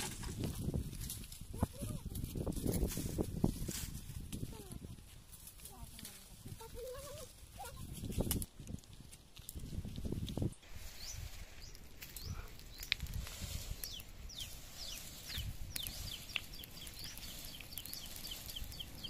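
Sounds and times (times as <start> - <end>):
dry leaves crackling in fire: 0.0 - 19.0
fire low rumble: 0.0 - 19.0
small birds chirping: 10.1 - 19.0.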